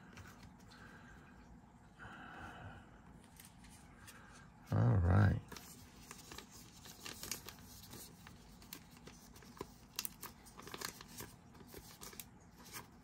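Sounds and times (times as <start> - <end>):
plastic sleeve crinkling: 5.5 - 13.0.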